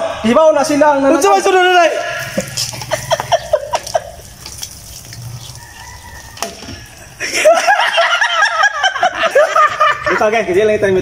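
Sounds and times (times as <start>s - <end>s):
people laughing: 1.9s - 4.9s, 6.8s - 10.6s
water splashing and dripping: 1.9s - 9.1s.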